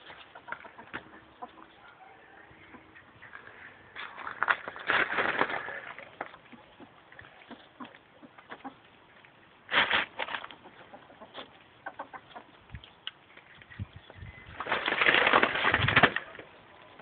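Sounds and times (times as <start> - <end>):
gravel crunch: 3.2 - 11.6.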